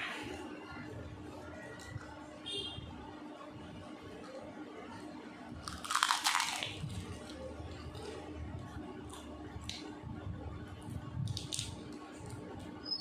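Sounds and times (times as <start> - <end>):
crisp shell crunching: 5.6 - 8.1.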